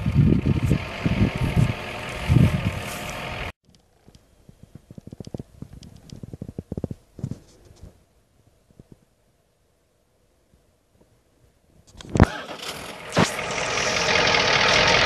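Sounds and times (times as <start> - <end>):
wind gusting on microphone: 0.0 - 3.5, 4.4 - 8.0
engine running: 0.0 - 3.6, 12.1 - 15.0
faint crackles and taps: 3.6 - 8.0.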